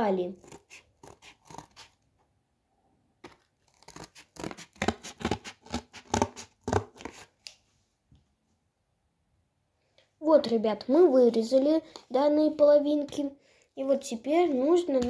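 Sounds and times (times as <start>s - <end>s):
scissors cutting cardboard: 0.4s - 2.0s, 3.2s - 7.3s.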